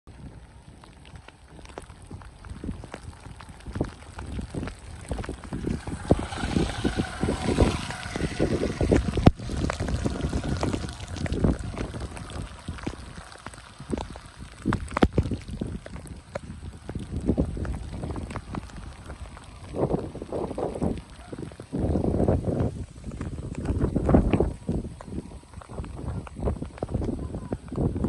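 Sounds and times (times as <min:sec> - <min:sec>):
rain: 0:00.1 - 0:28.0
wind buffeting microphone: 0:00.1 - 0:28.0
motorcycle engine passing: 0:03.2 - 0:25.0.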